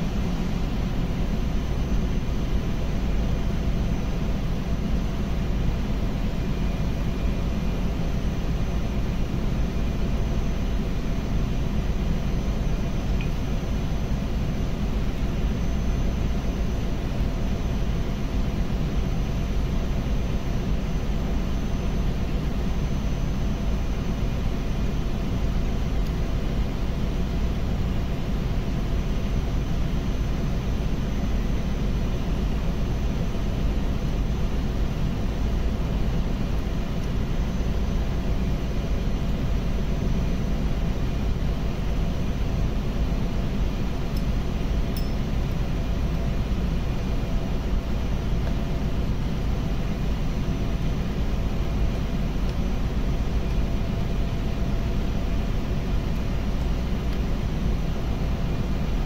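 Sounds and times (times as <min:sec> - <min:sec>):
faint steady tones: 0:43.6 - 0:59.0.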